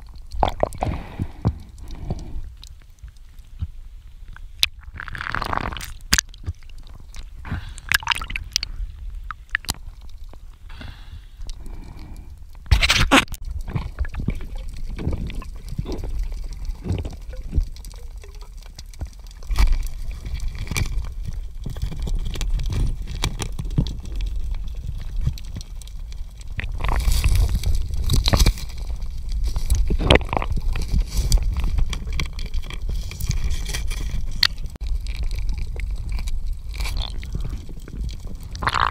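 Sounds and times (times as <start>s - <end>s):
muffled underwater water movement: 0.0s - 12.8s, 13.4s - 38.9s
knocks and scrapes underwater: 12.6s - 38.9s.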